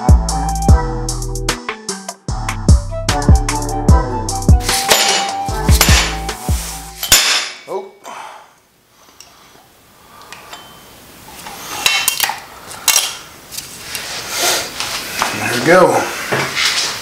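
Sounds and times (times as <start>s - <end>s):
hammer striking metal cover: 4.7s - 6.4s, 7.0s - 7.7s
metal clinking and clattering: 4.8s - 6.2s, 7.0s - 7.7s.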